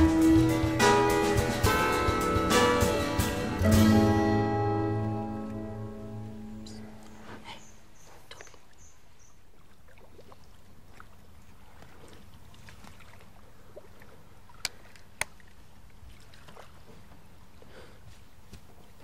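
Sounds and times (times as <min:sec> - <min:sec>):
water lapping at a jetty: 0:06.9 - 0:19.0.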